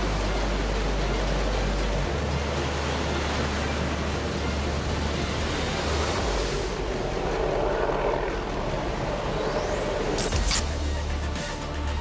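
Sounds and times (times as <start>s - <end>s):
ocean wave breaking: 0.0s - 10.2s.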